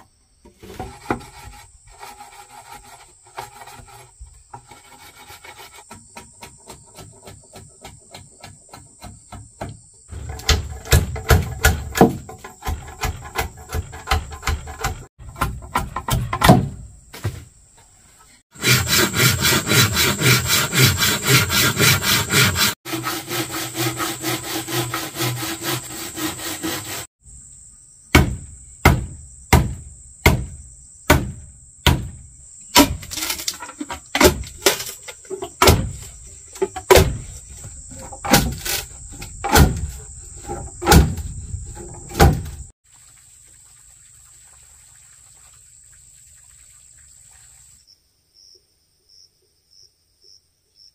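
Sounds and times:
scraping wood: 0.4 - 17.4, 18.2 - 27.1, 32.1 - 42.7
rasping on wood: 0.6 - 9.2, 18.5 - 27.1
sharp blows on wood: 18.5 - 27.1, 28.1 - 33.4, 34.1 - 42.7.

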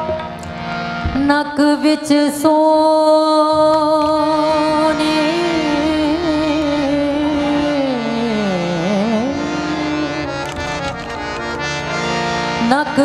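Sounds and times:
instrumental accompaniment: 0.0 - 13.0
woman singing: 1.1 - 10.2, 12.6 - 13.0.

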